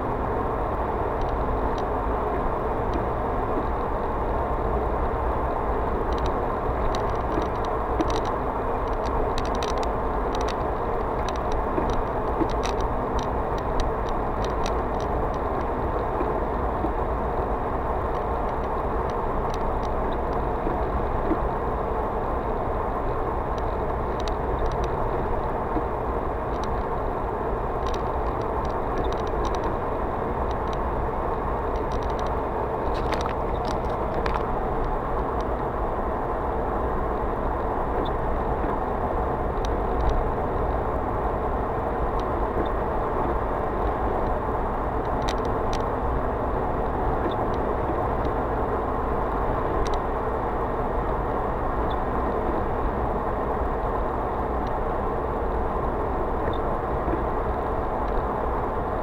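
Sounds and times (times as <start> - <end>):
car interior road noise: 0.0 - 59.0
light ticks: 1.2 - 1.9, 2.9 - 3.9, 6.0 - 17.5, 18.1 - 21.5, 23.5 - 25.9, 26.5 - 27.1, 27.8 - 29.8, 30.4 - 30.9, 31.7 - 35.7, 38.0 - 38.8, 39.6 - 40.3, 42.1 - 44.4, 45.0 - 46.0, 46.8 - 48.4, 49.7 - 50.1.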